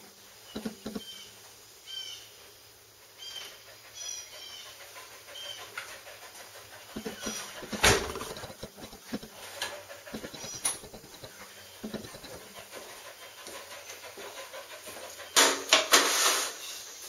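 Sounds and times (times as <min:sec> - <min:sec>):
birds chirping: 0:06.9 - 0:09.4, 0:10.0 - 0:13.4.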